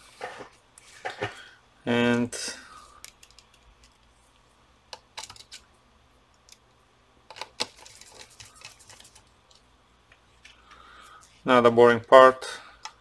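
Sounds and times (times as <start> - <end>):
metal parts clicking and tapping: 4.9 - 5.6.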